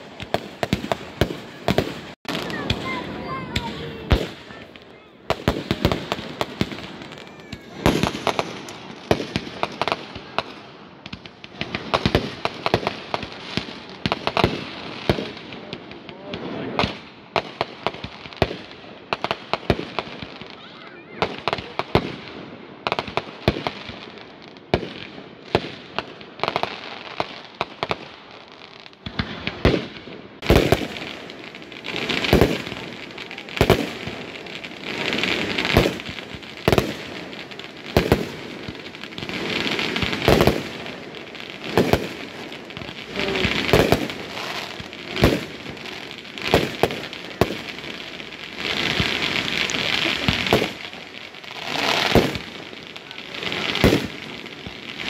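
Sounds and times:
firework shells booming: 0:00.0 - 0:13.3, 0:29.0 - 0:55.0
crackling firework stars: 0:00.0 - 0:55.0.

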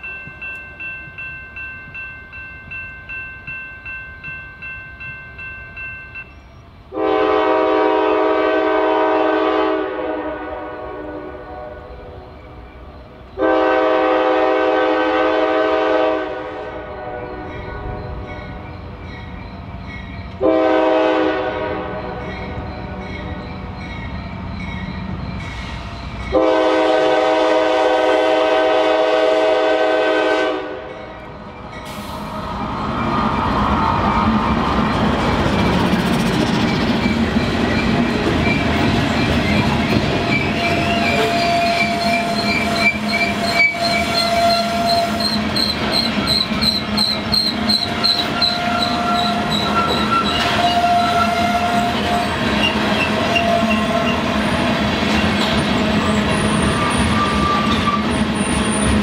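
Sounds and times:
railroad crossing bell ringing: 0:00.0 - 0:07.2, 0:16.7 - 0:27.3, 0:30.8 - 0:52.4
train rumble: 0:00.0 - 0:59.0
locomotive horn blasts: 0:06.9 - 0:12.2, 0:13.4 - 0:18.6, 0:20.4 - 0:23.1, 0:26.3 - 0:30.9, 0:40.6 - 0:45.4, 0:48.3 - 0:54.3.

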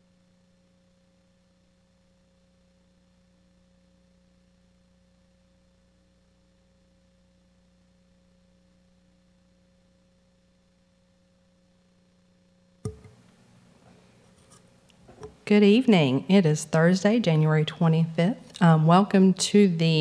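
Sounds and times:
electrical hum: 0:00.0 - 0:20.0
faint room sound: 0:00.0 - 0:20.0
microphone switch click: 0:12.9 - 0:13.2.

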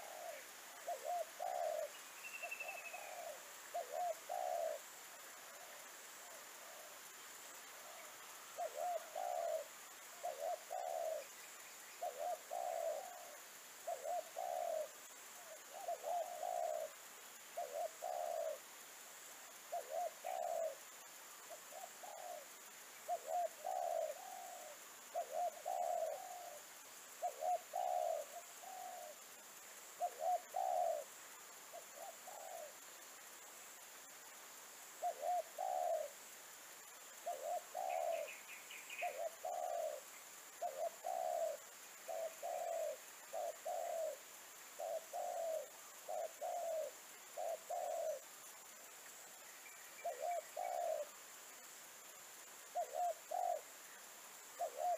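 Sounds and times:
dove cooing: 0:00.0 - 0:07.0, 0:07.7 - 0:11.4, 0:12.0 - 0:17.0, 0:17.6 - 0:18.7, 0:19.7 - 0:20.8, 0:21.5 - 0:29.3, 0:30.0 - 0:32.8, 0:35.0 - 0:36.3, 0:37.2 - 0:48.6, 0:50.0 - 0:51.2, 0:52.7 - 0:53.8, 0:54.5 - 0:54.9.

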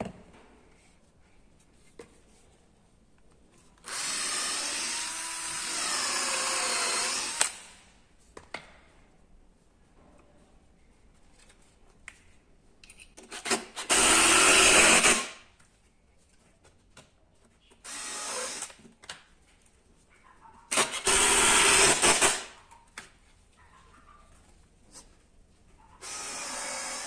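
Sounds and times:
power drill running: 0:03.8 - 0:07.7, 0:13.8 - 0:15.3, 0:17.8 - 0:18.7, 0:20.7 - 0:22.5, 0:26.0 - 0:27.0.

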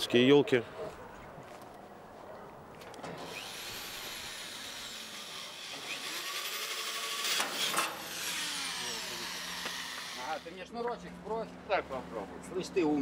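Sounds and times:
drill bit grinding into panel: 0:03.2 - 0:10.5
cordless drill motor whine: 0:03.3 - 0:10.5.

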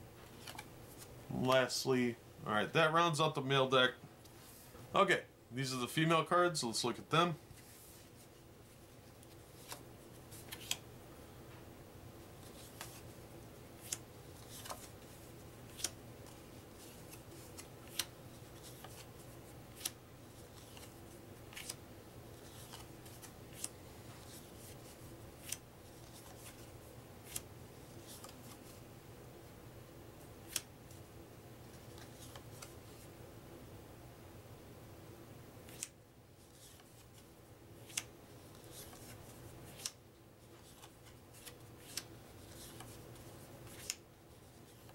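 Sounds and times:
paper cards snapping: 0:10.4 - 0:10.8, 0:15.7 - 0:16.0, 0:17.0 - 0:19.1, 0:30.5 - 0:30.7, 0:35.7 - 0:36.0, 0:37.8 - 0:38.1, 0:39.7 - 0:40.0, 0:43.6 - 0:44.0.

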